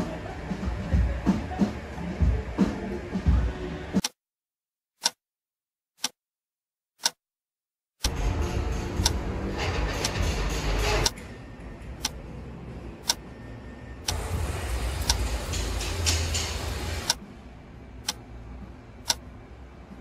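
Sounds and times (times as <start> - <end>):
clock ticking: 7.0 - 7.2, 13.0 - 13.2, 14.0 - 17.2, 18.0 - 18.2, 19.0 - 19.2
rumbling outdoor background noise: 8.0 - 20.0.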